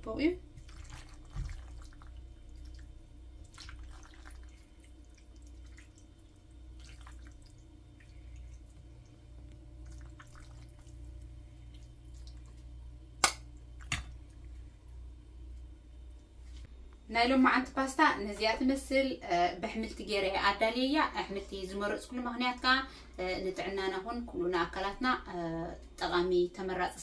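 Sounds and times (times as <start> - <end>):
steady low hum: 0.0 - 27.0
soft wet squelches: 0.4 - 17.1.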